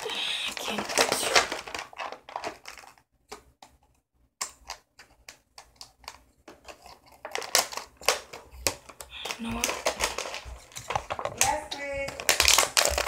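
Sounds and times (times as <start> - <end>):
plastic crackling: 0.0 - 13.0.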